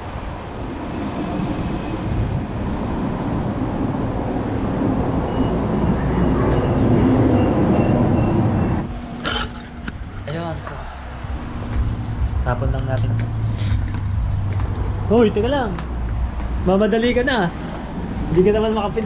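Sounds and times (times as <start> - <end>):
heavy vehicle rumble passing: 0.0 - 19.0
faint high beep: 5.3 - 8.7.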